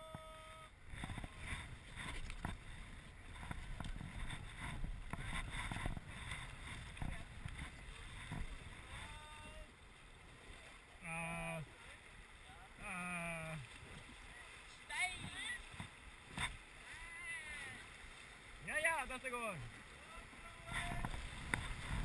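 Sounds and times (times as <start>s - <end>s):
paddles splashing: 0.0s - 22.0s
rushing river water: 0.0s - 22.0s.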